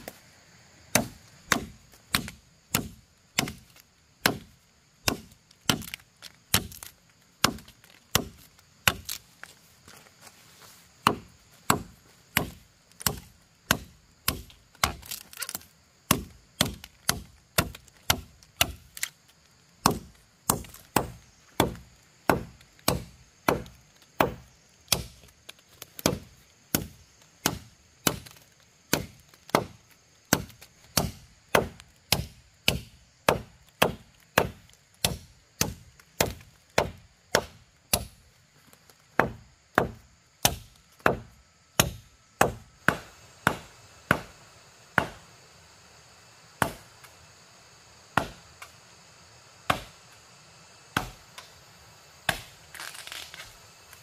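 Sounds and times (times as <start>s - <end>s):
wood being chopped: 0.9s - 9.6s, 11.0s - 19.2s, 19.8s - 38.2s, 39.1s - 44.4s, 45.0s - 45.3s, 46.6s - 46.9s, 48.1s - 48.8s, 49.7s - 50.0s, 50.9s - 51.5s, 52.3s - 53.3s.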